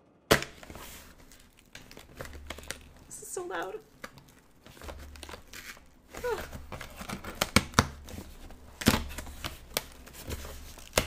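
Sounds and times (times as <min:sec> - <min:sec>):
cardboard box ripping: 0:04.1 - 0:11.0.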